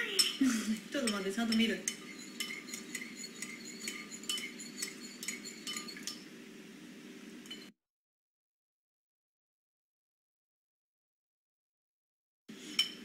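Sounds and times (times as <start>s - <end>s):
metal spoon clinking in bowl: 0.0s - 0.4s, 1.0s - 6.2s, 7.4s - 7.7s, 12.7s - 13.0s.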